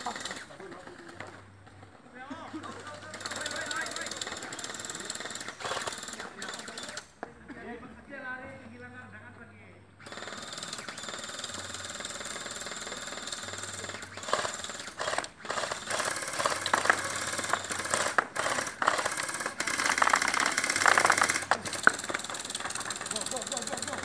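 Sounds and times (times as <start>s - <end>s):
gel blasters firing full auto: 2.8s - 7.0s, 10.0s - 24.0s.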